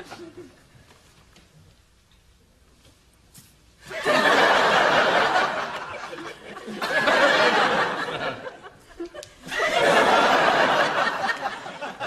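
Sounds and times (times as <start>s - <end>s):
studio audience laughing: 3.8s - 12.0s.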